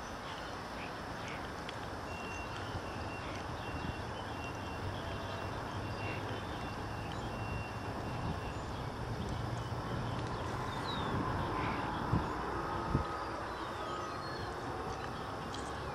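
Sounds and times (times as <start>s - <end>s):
outdoor rumble and hiss: 0.0s - 15.9s
faint high bird chirps: 2.0s - 12.4s.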